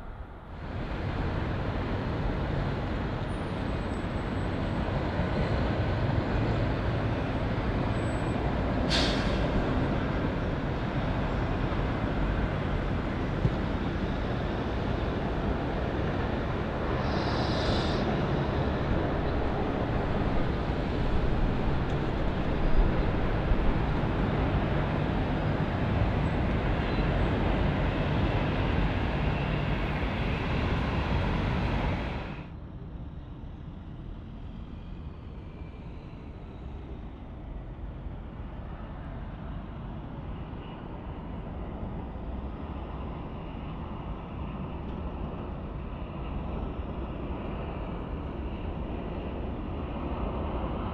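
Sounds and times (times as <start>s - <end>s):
distant jet on approach: 0.0s - 32.5s
airliner landing jet roar: 8.6s - 32.5s.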